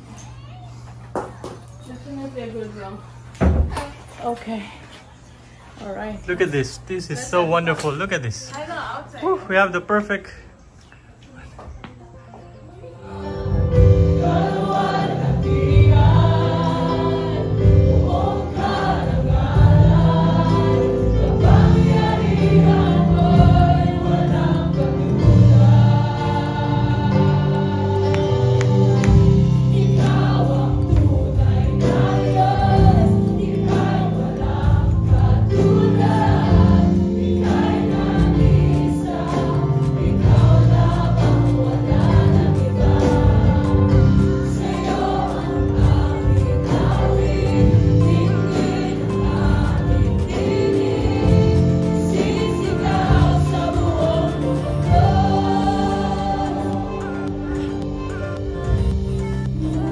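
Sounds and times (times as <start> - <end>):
instrumental backing: 12.3 - 59.9
many voices singing along: 13.0 - 59.9.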